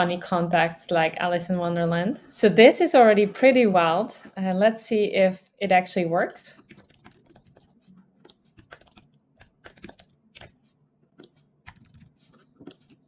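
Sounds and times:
faint computer keyboard typing: 0:06.6 - 0:13.0.

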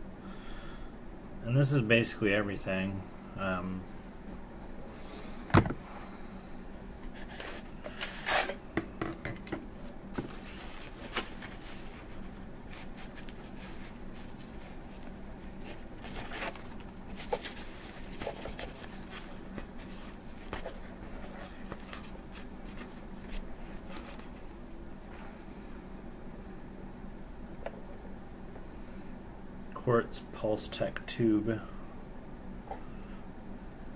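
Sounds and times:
wrapping rustling: 0:09.8 - 0:24.6.

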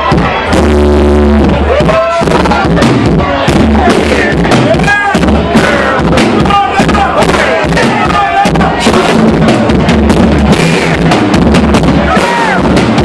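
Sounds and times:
drum kit beat: 0:00.0 - 0:13.0
rock band playing: 0:00.0 - 0:13.0
man singing: 0:03.8 - 0:09.4.

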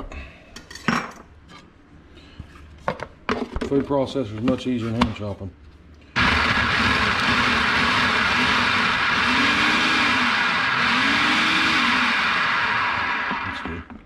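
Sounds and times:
food processor running: 0:06.2 - 0:14.0.

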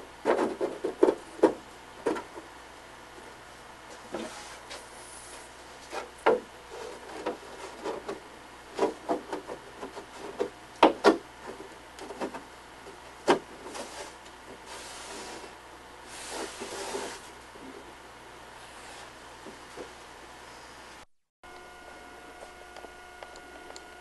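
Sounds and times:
sliding rub: 0:04.1 - 0:06.1, 0:13.6 - 0:17.3, 0:18.6 - 0:19.2.

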